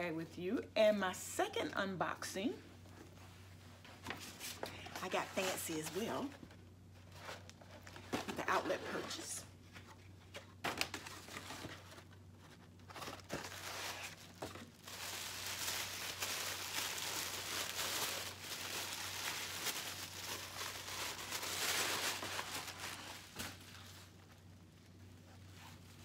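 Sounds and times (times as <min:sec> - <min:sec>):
paper wrapping crinkling: 0:10.3 - 0:26.0.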